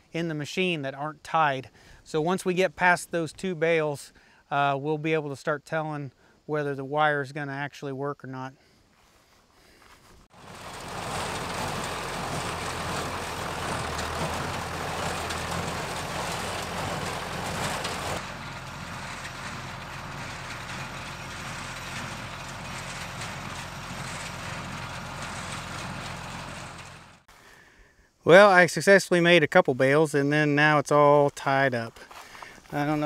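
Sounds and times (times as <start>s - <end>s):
hay baler mechanical din: 10.3s - 27.3s
tractor engine drone: 10.3s - 27.3s.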